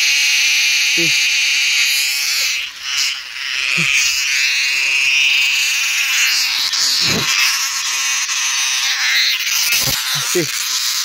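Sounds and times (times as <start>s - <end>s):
cicada buzzing: 0.0s - 11.0s.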